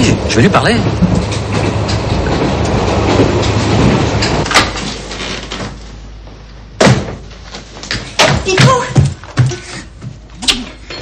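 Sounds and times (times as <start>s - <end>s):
railway carriage rumbling: 0.0s - 5.2s.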